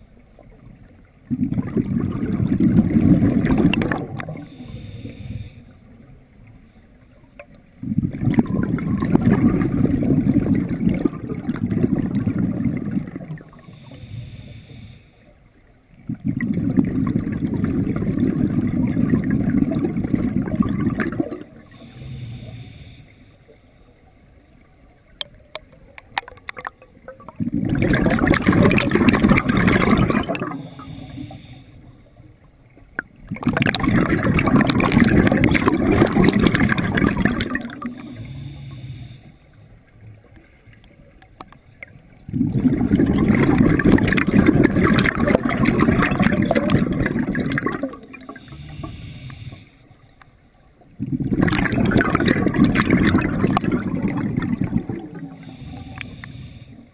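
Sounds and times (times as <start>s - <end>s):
diver exhaling bubbles underwater: 1.2s - 4.7s, 7.8s - 13.9s, 16.0s - 22.5s, 26.5s - 31.5s, 33.2s - 39.1s, 42.2s - 49.6s, 50.9s - 56.8s.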